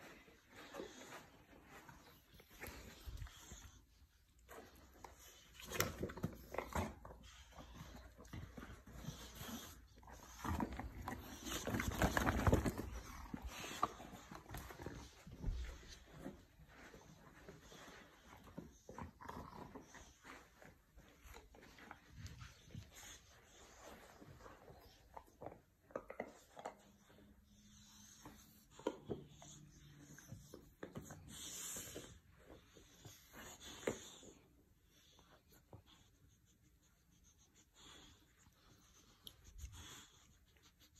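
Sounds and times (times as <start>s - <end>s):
puppy playing with rubber glove: 5.4s - 17.8s.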